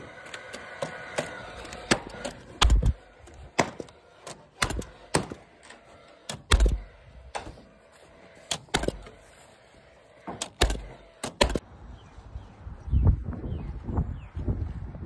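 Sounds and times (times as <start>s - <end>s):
hammer nailing wood: 0.8s - 3.0s, 3.6s - 5.4s, 6.3s - 7.5s, 10.3s - 11.6s.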